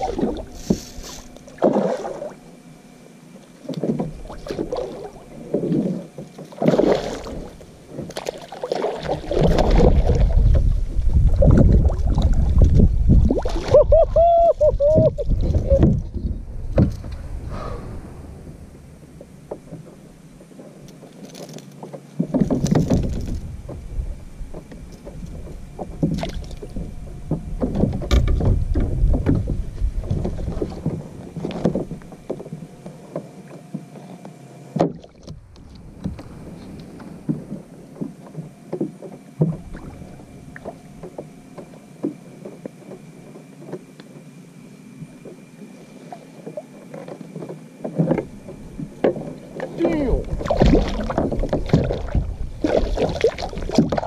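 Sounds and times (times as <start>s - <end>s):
water splashes: 0.0s - 2.6s, 3.6s - 21.6s, 25.8s - 26.9s, 34.8s - 42.2s, 45.1s - 54.0s
knocks and rattles on plastic kayak: 5.4s - 13.8s, 14.6s - 17.1s, 19.5s - 34.0s, 34.7s - 44.2s, 46.4s - 54.0s
low rumble: 9.6s - 20.9s.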